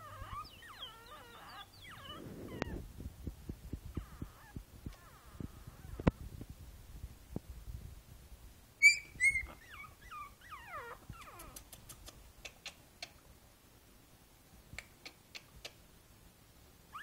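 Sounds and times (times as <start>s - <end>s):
puppy whimpering: 0.0s - 2.8s, 3.9s - 6.2s, 8.8s - 11.7s
puppy yipping: 0.0s - 2.8s, 4.0s - 6.2s, 8.8s - 11.8s.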